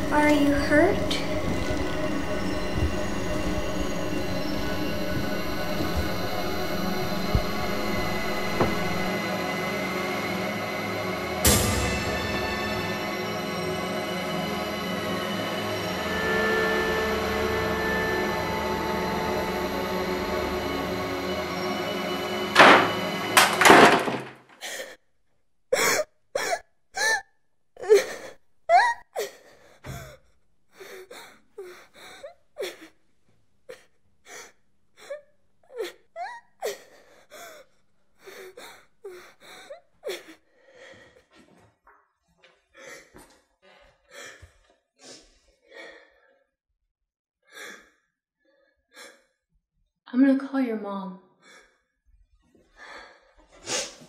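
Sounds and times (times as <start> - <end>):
loud noise: 15.8 - 24.3
girl sobbing: 25.8 - 27.2, 27.8 - 30.2, 35.0 - 37.6, 38.3 - 40.4.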